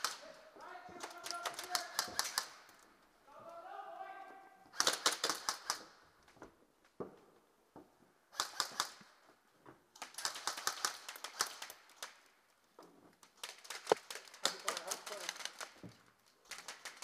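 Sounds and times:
airsoft guns firing bursts: 0.0 - 0.3, 0.9 - 2.7, 4.7 - 6.0, 8.3 - 9.1, 10.0 - 12.1, 16.5 - 17.0.

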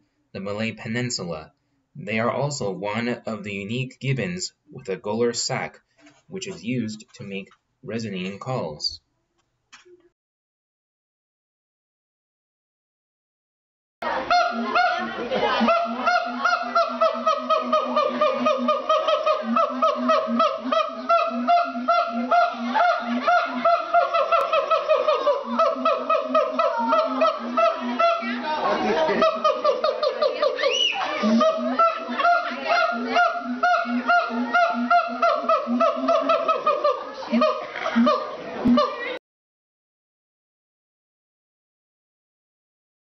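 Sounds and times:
ape hooting calls: 14.0 - 39.1.

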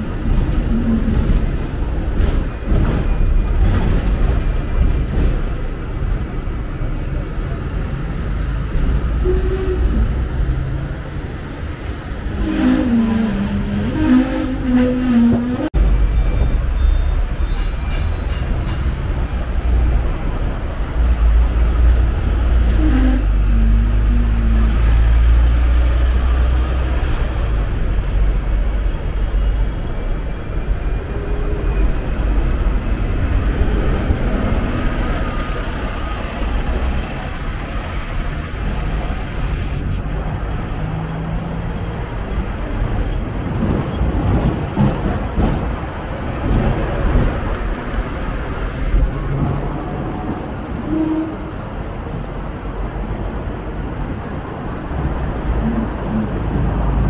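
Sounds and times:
road traffic: 0.0 - 57.0
tram rumbling on rails: 0.0 - 57.0.

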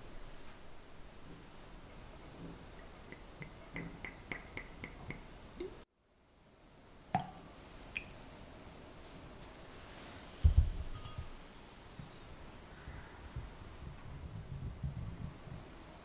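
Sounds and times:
metal cup clinking on glass bowl: 10.9 - 11.4.

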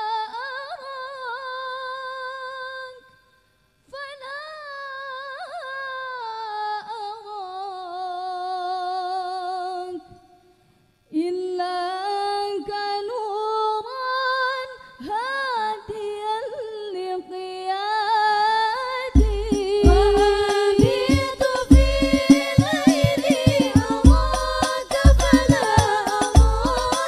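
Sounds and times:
girls singing ornamented melody: 11.4 - 27.0
frame drum beats: 19.2 - 27.0.

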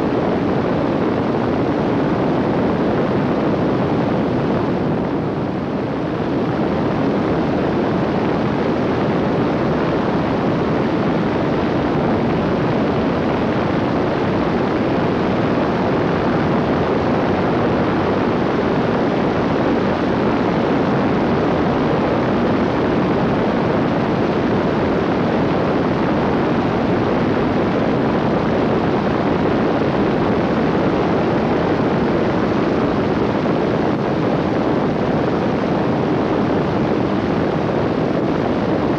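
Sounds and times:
aircraft engine and propeller drone: 0.0 - 38.9
wind rush on microphone: 0.0 - 38.9.

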